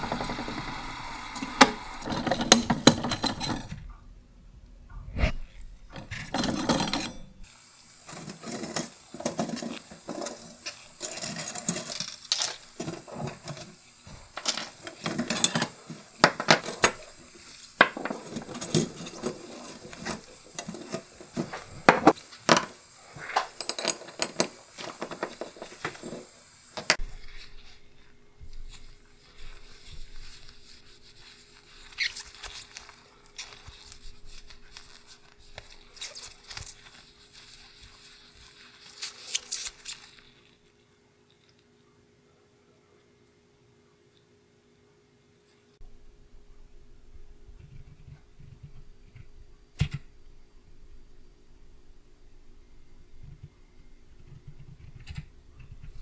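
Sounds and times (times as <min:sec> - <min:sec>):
small metal parts clinking: 0:23.6 - 0:26.1.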